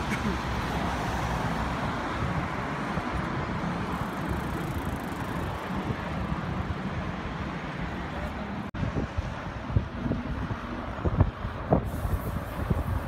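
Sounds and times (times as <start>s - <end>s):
cars passing: 0.0s - 13.0s.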